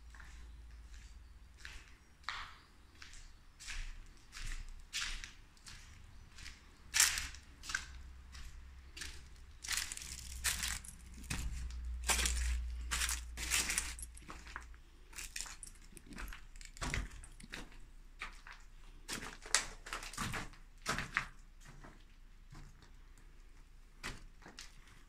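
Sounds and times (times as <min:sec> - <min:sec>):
footsteps crunching on gravel: 0:00.1 - 0:22.0
steady low rumble: 0:07.3 - 0:15.5.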